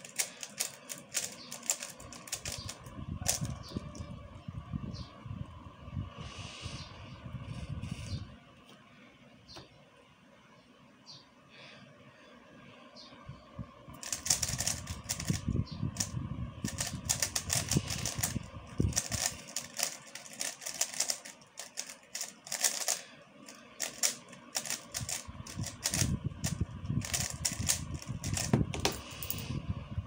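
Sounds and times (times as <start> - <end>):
puzzle cube clicking: 0.0 - 3.5, 14.0 - 15.4, 16.7 - 23.0, 23.8 - 28.9.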